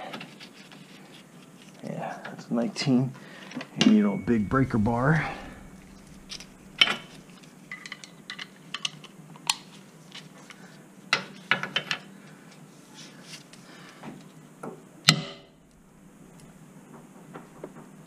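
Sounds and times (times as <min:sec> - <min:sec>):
ringing metal clank: 0:03.9 - 0:07.2.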